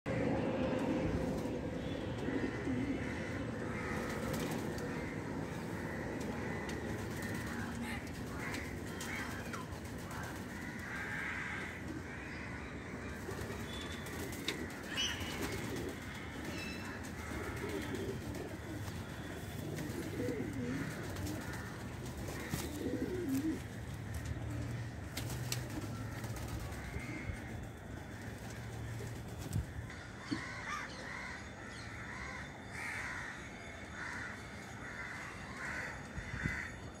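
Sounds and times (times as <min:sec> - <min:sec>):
pigeons cooing: 0:13.1 - 0:27.6.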